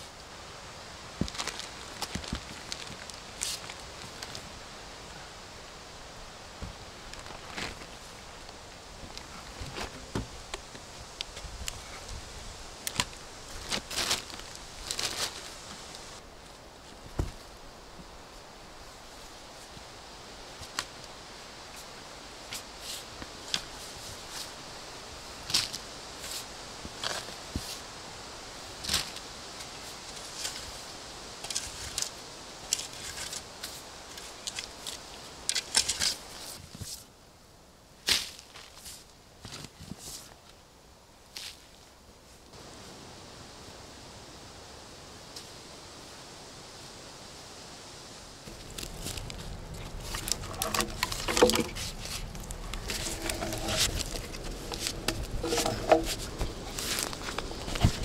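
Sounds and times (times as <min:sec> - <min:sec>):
twigs crackling: 0:01.1 - 0:04.6, 0:06.6 - 0:12.2, 0:12.8 - 0:17.5, 0:48.4 - 0:58.0
footsteps on soft forest ground: 0:06.5 - 0:17.6, 0:48.4 - 0:58.0
shovel being handled: 0:49.9 - 0:58.0
shovel blade scraping into soil: 0:50.0 - 0:58.0.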